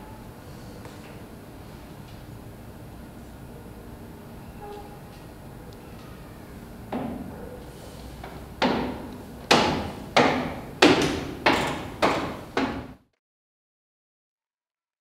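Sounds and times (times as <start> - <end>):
loud heavy knocks: 6.9 - 7.3, 8.2 - 13.0.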